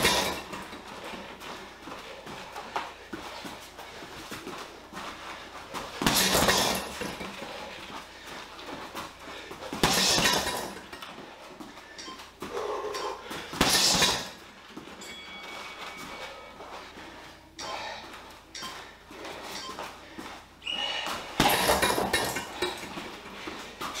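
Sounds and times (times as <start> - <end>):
gloves punching heavy bag: 0.0 - 1.3, 5.7 - 7.8, 8.8 - 11.0, 12.4 - 14.5, 21.0 - 24.0.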